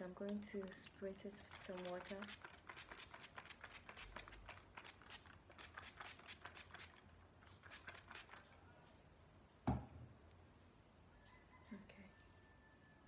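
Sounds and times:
spray bottle spritzing: 0:01.5 - 0:08.5.

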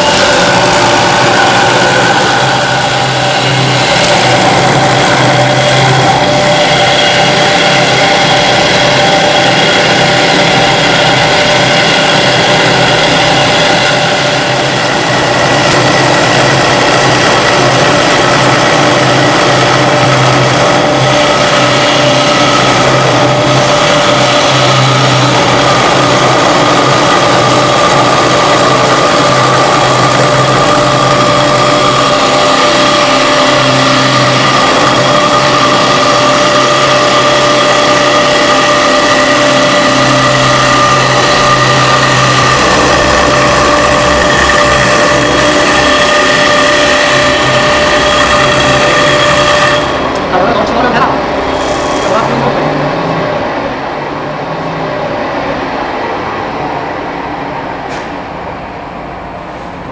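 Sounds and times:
cutters cutting wood: 0:00.0 - 0:50.3
router spindles whining: 0:00.0 - 0:53.0.

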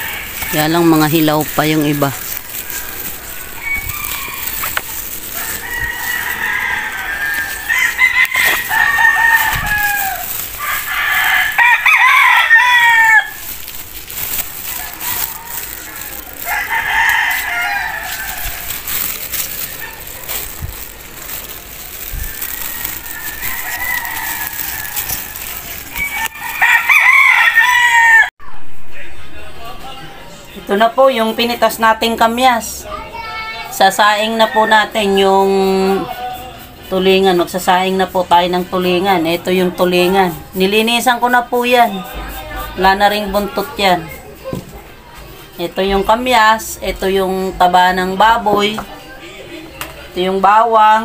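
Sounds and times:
roosters crowing: 0:00.0 - 0:28.3, 0:33.7 - 0:43.9.

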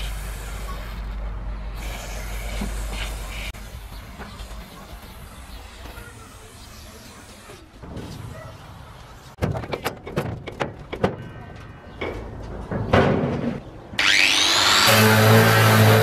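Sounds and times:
metal knocks and clatters: 0:09.4 - 0:13.7
power sander whining: 0:14.0 - 0:16.0.

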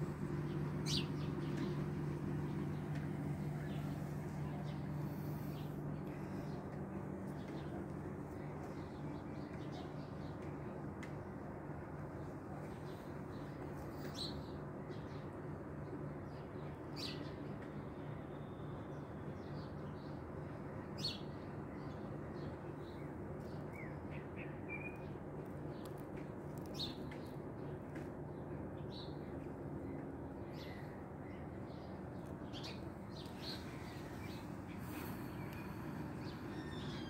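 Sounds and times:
small birds chirping: 0:00.0 - 0:10.7, 0:21.0 - 0:37.0
low background hum: 0:00.0 - 0:37.0.

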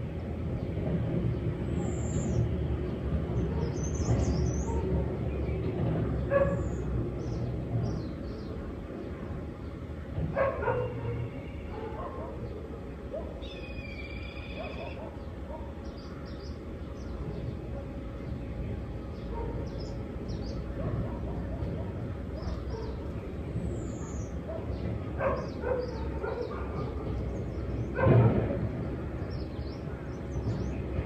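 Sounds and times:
small birds chirping: 0:00.0 - 0:31.0
distant dog barking: 0:06.2 - 0:06.8, 0:10.3 - 0:13.6, 0:14.5 - 0:15.8, 0:19.3 - 0:19.9, 0:20.7 - 0:23.1, 0:24.4 - 0:28.6.

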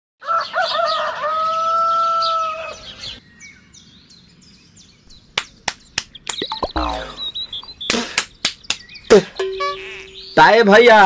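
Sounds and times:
rooster crowing: 0:00.2 - 0:02.8
small birds chirping: 0:00.3 - 0:11.0.

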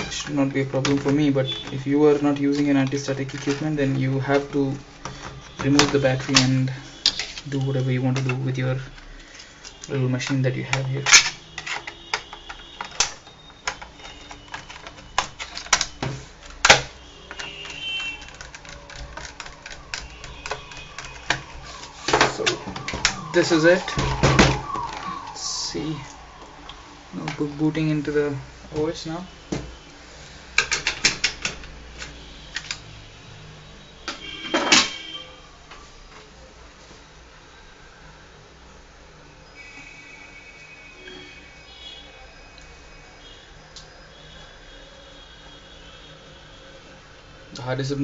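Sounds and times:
screwdriver clicking on plastic: 0:10.2 - 0:21.6.

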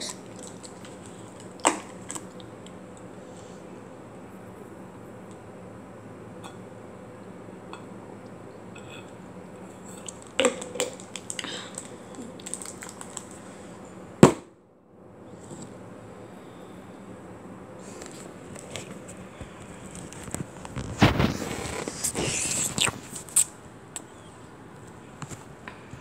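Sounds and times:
plastic bottle crackling: 0:00.0 - 0:02.4, 0:10.0 - 0:13.4
steady low hum: 0:00.0 - 0:26.0.

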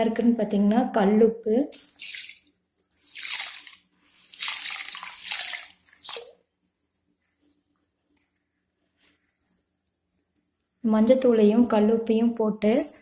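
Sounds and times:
salt pouring into water: 0:01.7 - 0:06.3.

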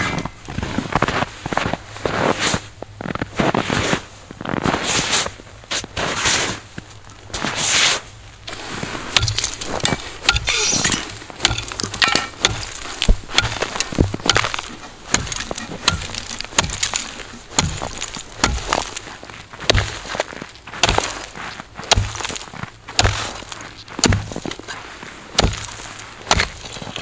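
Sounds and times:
boots scuffing through snow: 0:00.0 - 0:11.6, 0:12.4 - 0:27.0
ice chisel chopping ice: 0:08.5 - 0:24.7, 0:25.3 - 0:27.0
ice cracking and chipping: 0:08.5 - 0:27.0.

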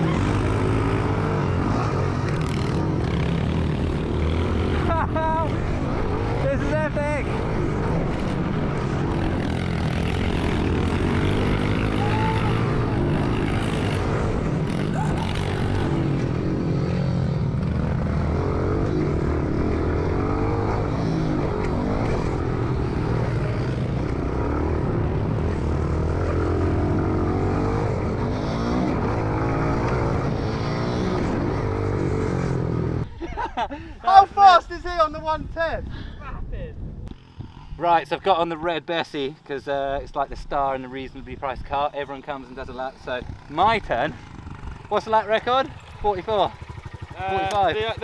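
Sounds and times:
small motorbike engine revving: 0:07.3 - 0:33.1.

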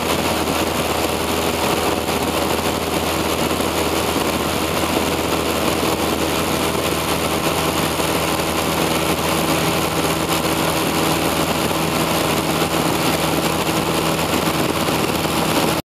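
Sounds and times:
propeller airplane engine droning: 0:00.0 - 0:15.8.

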